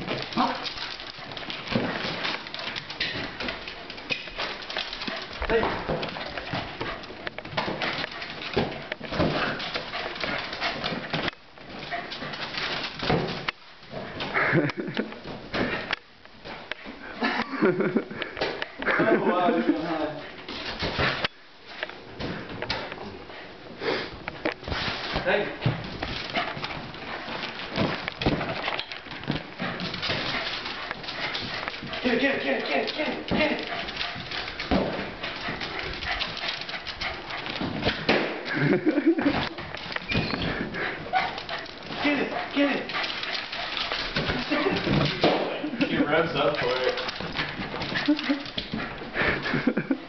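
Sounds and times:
dog claws clicking on tile floor: 0:00.0 - 0:13.6, 0:25.6 - 0:50.0.

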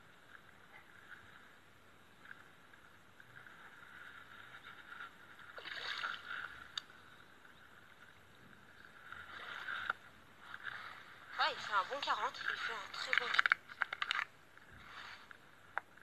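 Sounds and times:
fish splashing in water: 0:05.5 - 0:06.7.

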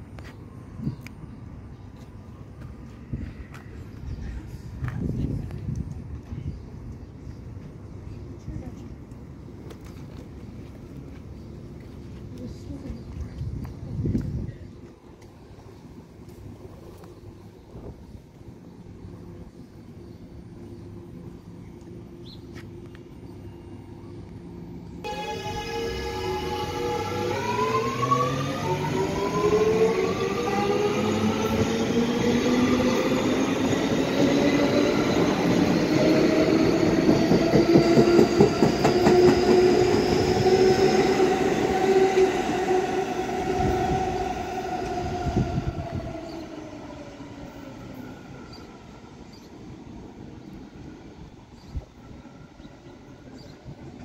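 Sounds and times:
subway traction motors whining: 0:14.0 - 0:54.0.

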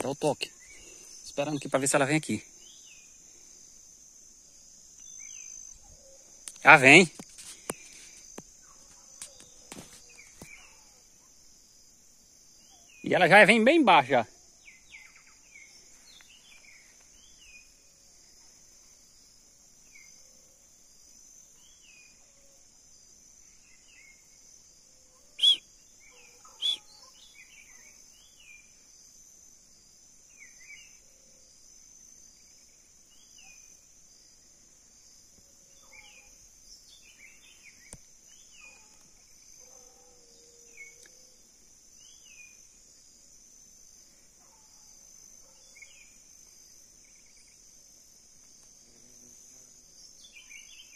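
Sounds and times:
high-pitched insect drone: 0:00.0 - 0:50.9
bird chirps: 0:25.4 - 0:28.7.

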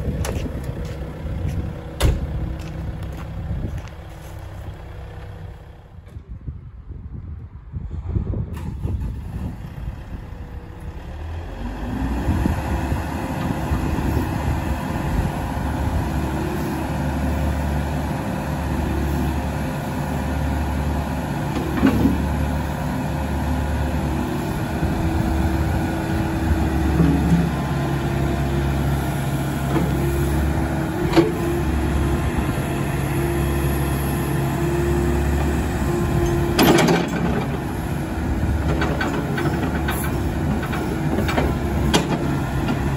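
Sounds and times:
excavator diesel engine running: 0:00.0 - 0:06.4, 0:08.5 - 0:42.9.

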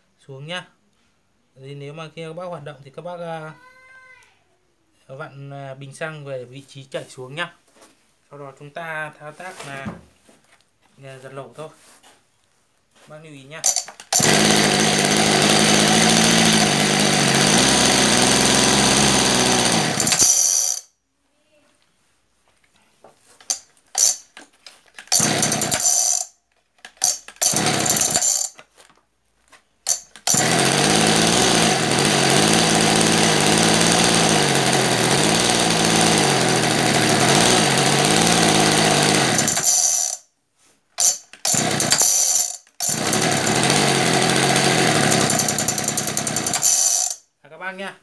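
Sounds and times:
brush-cutter engine starting and running: 0:13.6 - 0:20.8, 0:23.5 - 0:24.2, 0:25.0 - 0:26.3, 0:26.9 - 0:28.6, 0:29.9 - 0:40.2, 0:41.0 - 0:47.2.

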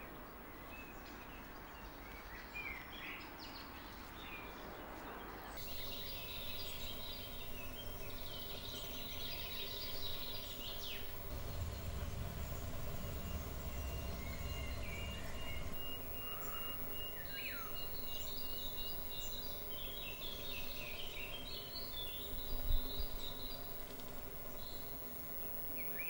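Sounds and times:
faint steady hum: 0:04.5 - 0:26.0
birds chirping and singing: 0:05.6 - 0:23.9.

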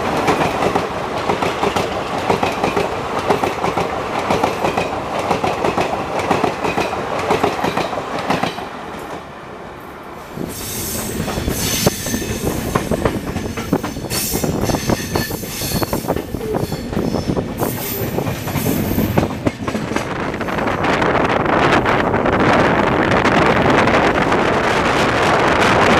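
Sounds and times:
high wheel squeal: 0:10.4 - 0:19.0.

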